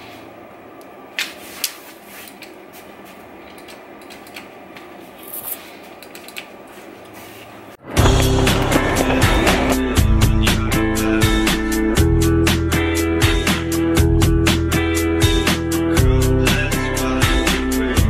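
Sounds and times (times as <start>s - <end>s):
background music with steady beat: 8.0s - 18.0s.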